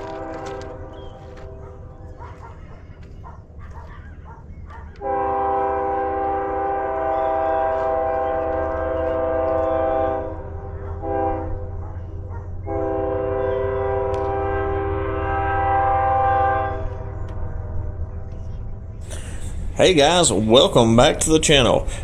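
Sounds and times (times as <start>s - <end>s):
locomotive air horn blasts: 0.0s - 1.9s, 5.0s - 11.8s, 12.6s - 17.2s
low steady rumble: 5.1s - 22.0s.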